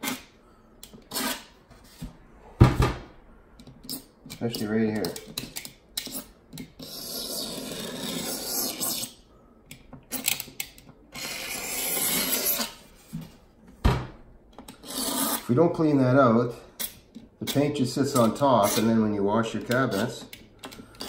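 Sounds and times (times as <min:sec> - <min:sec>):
hand tool scraping wood grooves: 0:11.2 - 0:12.8, 0:14.7 - 0:15.5.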